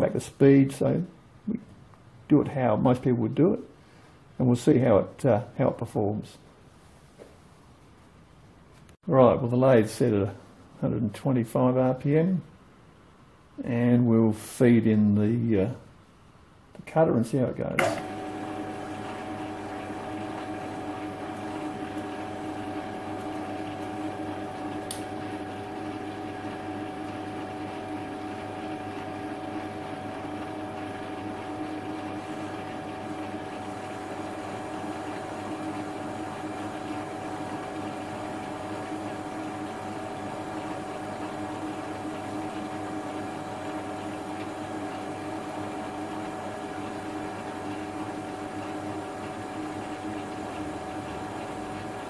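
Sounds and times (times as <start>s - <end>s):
metal lathe humming and whining: 17.8s - 52.0s.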